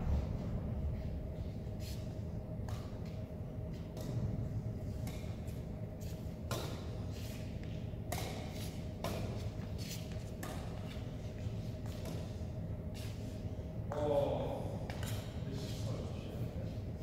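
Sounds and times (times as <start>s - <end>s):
steady low hum: 0.0s - 17.0s
rackets hitting shuttlecock: 6.4s - 9.7s, 10.3s - 11.1s.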